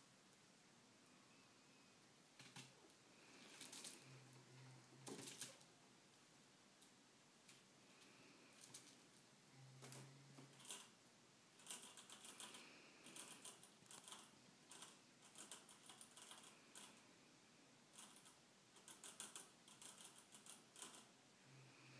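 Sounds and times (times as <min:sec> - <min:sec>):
chinchillas clicking and crunching: 0:09.8 - 0:11.0, 0:11.6 - 0:17.0, 0:17.9 - 0:21.1.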